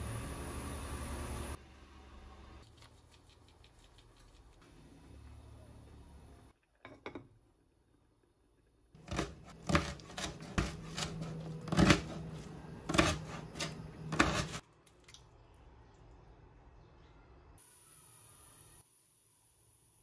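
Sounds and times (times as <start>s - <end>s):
knife chopping on cutting board: 9.0s - 14.6s.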